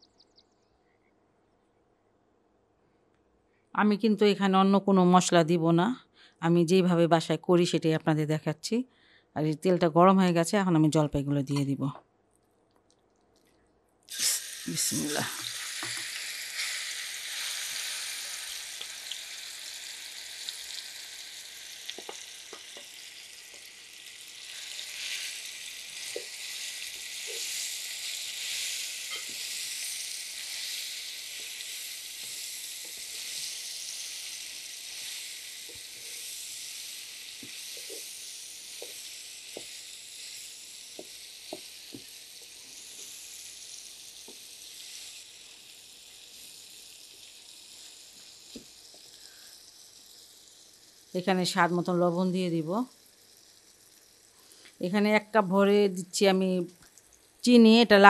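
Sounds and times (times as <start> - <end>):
olives sizzling in hot oil: 14.1 - 58.0.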